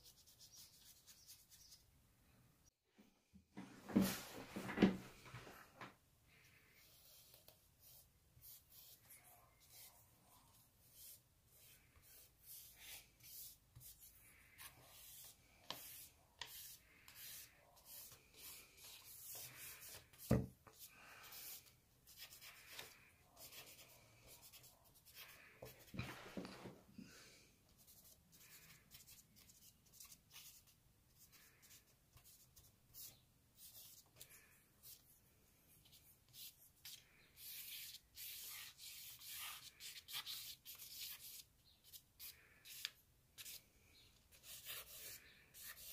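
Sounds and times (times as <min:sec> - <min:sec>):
charcoal scratching on paper: 0:00.0 - 0:01.8, 0:06.8 - 0:26.1, 0:35.8 - 0:43.6, 0:44.3 - 0:45.9.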